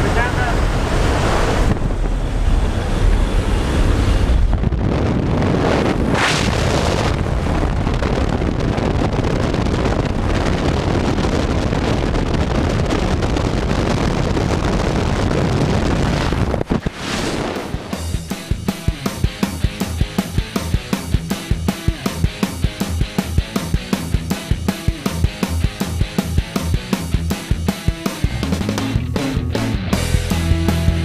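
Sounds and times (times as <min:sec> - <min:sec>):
plane engine: 0:00.0 - 0:09.2
wind buffeting microphone: 0:00.0 - 0:20.0.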